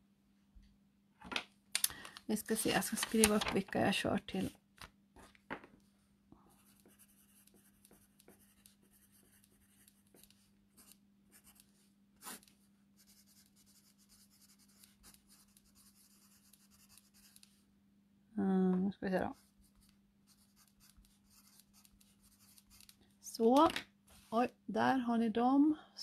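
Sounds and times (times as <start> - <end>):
pen scratching on paper: 6.6 - 11.6, 12.2 - 17.5, 19.4 - 22.9.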